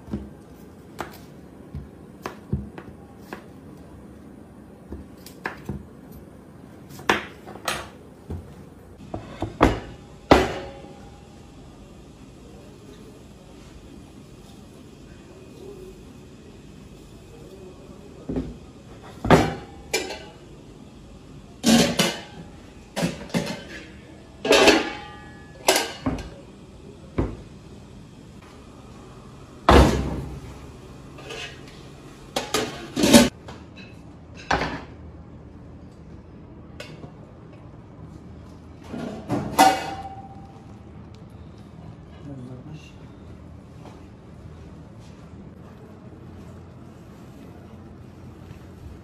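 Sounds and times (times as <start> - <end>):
pot and utensils clanking: 19.2 - 20.4, 21.6 - 26.4, 31.2 - 34.9, 38.9 - 40.4.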